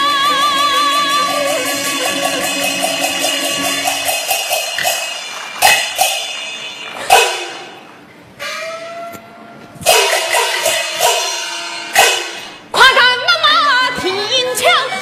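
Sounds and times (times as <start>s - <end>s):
drum strokes: 0.6s - 8.8s, 9.8s - 12.7s
cymbal and gong crashes: 1.2s - 7.8s, 9.8s - 12.7s.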